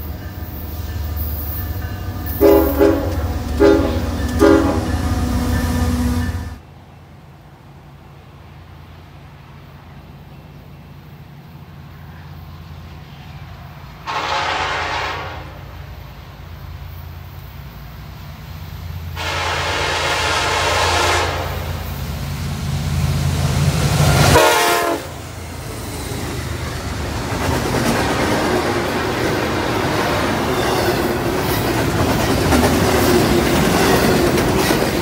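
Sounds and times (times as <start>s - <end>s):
diesel locomotive engine rumble: 0.0s - 35.0s
train air horn blasts: 1.5s - 6.6s, 14.0s - 15.9s, 19.2s - 21.8s, 24.1s - 25.2s
freight cars rolling: 25.4s - 35.0s.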